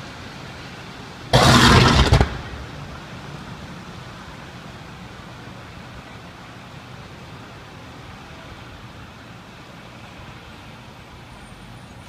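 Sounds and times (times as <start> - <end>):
steam rushing: 1.2 - 4.1
underground blast: 1.3 - 3.0.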